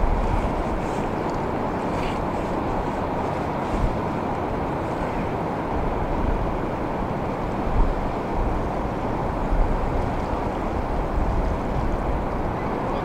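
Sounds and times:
ocean surf rushing: 0:00.0 - 0:13.0
wind buffeting microphone: 0:00.0 - 0:13.0.

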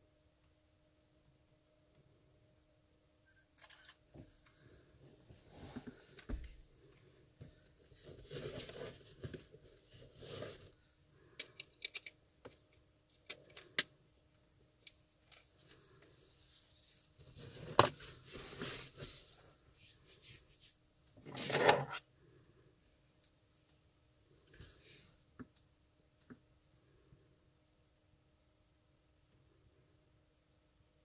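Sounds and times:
rustling: 0:04.2 - 0:11.4, 0:15.1 - 0:22.0.

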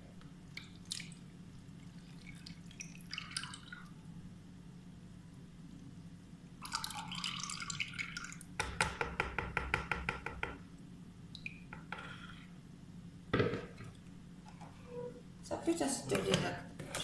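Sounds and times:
liquid dripping: 0:00.5 - 0:04.0, 0:06.6 - 0:08.6
liquid pouring into plastic tub: 0:01.8 - 0:03.9, 0:06.6 - 0:08.5.

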